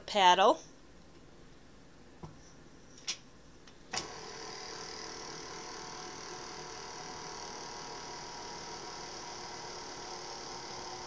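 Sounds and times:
stand mixer motor running: 4.0s - 11.0s.

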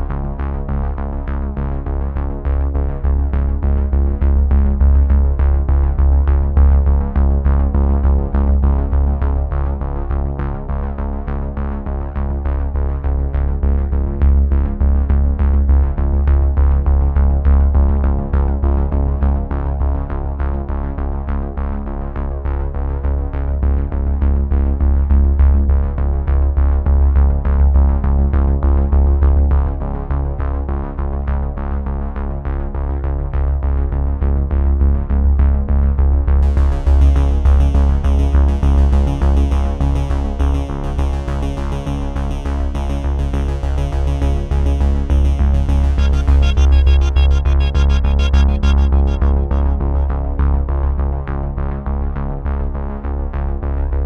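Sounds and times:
heavy bass: 0.0s - 54.0s
synthesizer chords: 43.8s - 51.1s
drum machine beat: 45.1s - 50.2s.

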